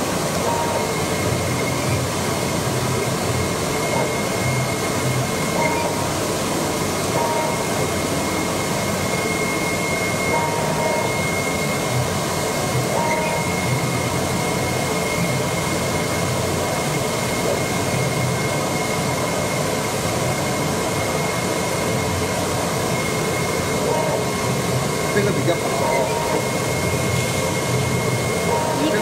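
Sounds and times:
cutting machine whirring: 0:20.5 - 0:29.0.

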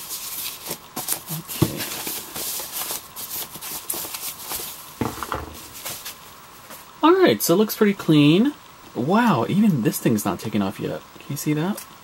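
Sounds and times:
plastic bag rustling: 0:00.1 - 0:06.3
soft knock: 0:05.0 - 0:05.8.

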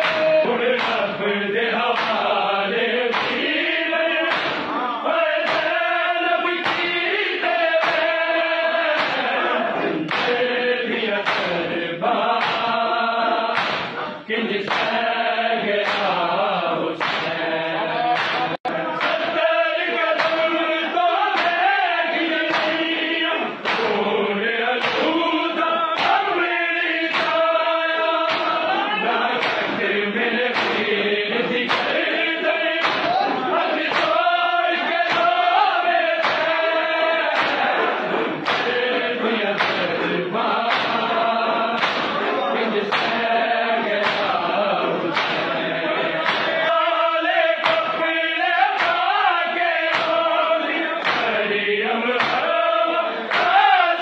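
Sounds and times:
hands slapping chests: 0:00.0 - 0:01.1, 0:02.0 - 0:02.4, 0:03.1 - 0:03.6, 0:04.2 - 0:04.8, 0:05.4 - 0:05.8, 0:06.6 - 0:07.0, 0:07.7 - 0:08.1, 0:08.7 - 0:10.5, 0:11.2 - 0:11.7, 0:12.3 - 0:12.8, 0:13.4 - 0:15.1, 0:15.8 - 0:16.3, 0:17.0 - 0:17.4, 0:18.0 - 0:19.5, 0:20.1 - 0:20.5, 0:21.3 - 0:21.7, 0:22.4 - 0:23.0, 0:23.6 - 0:24.1, 0:24.8 - 0:25.3, 0:26.0 - 0:26.3, 0:27.0 - 0:27.6, 0:28.2 - 0:29.8, 0:30.5 - 0:30.9, 0:31.6 - 0:39.0, 0:39.6 - 0:43.4, 0:44.0 - 0:44.5, 0:45.1 - 0:46.9, 0:47.6 - 0:48.0, 0:48.8 - 0:51.4, 0:52.2 - 0:52.6, 0:53.2 - 0:54.0
men chanting together: 0:00.0 - 0:54.0.

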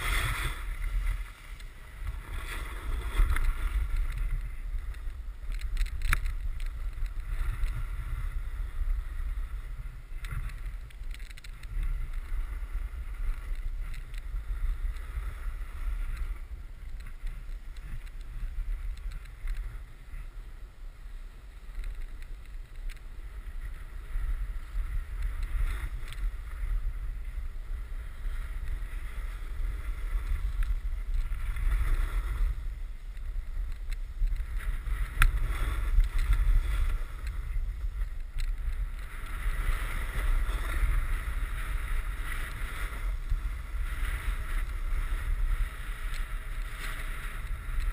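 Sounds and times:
snowboard scraping on snow: 0:00.0 - 0:05.5, 0:06.4 - 0:10.9, 0:23.1 - 0:47.9
wind rumbling on microphone: 0:00.0 - 0:47.9.

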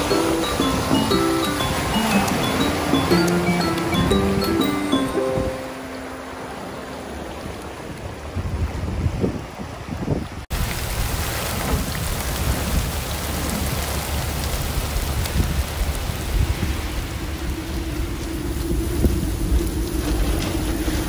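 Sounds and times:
heavy rain pouring: 0:00.0 - 0:09.8, 0:10.5 - 0:21.0.

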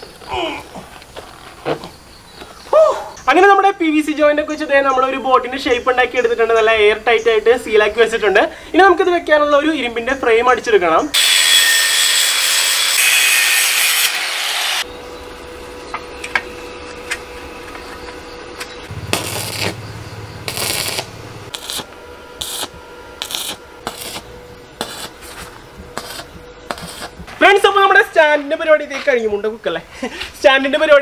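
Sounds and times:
angle grinder grinding steel: 0:18.9 - 0:27.4
arc welding crackle: 0:18.9 - 0:27.7.

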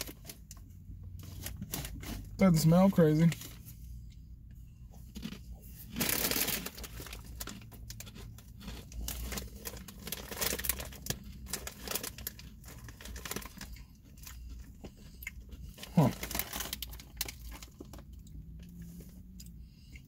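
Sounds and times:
chip bag crinkling: 0:05.2 - 0:14.4, 0:15.8 - 0:18.1.

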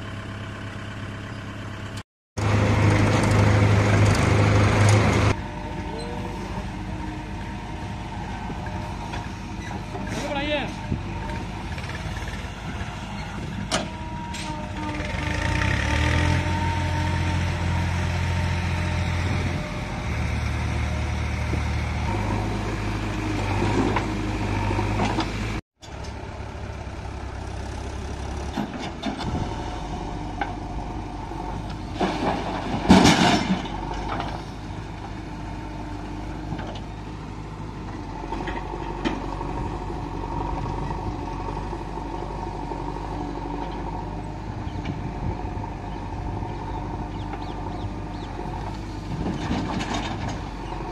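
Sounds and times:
diesel engine under load: 0:00.0 - 0:50.9
soil tipped into trailer: 0:31.8 - 0:34.5.

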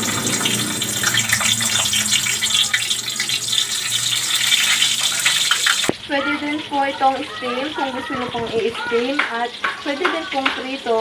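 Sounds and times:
low hum: 0:00.0 - 0:04.4
food deep-frying in oil: 0:00.0 - 0:11.0.

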